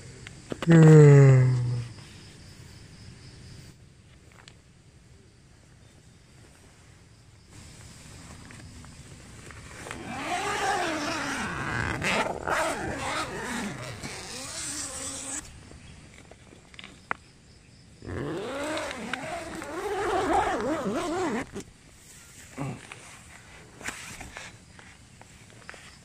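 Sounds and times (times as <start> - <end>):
tent zip being pulled: 9.3 - 15.6, 18.0 - 21.7, 22.6 - 24.6.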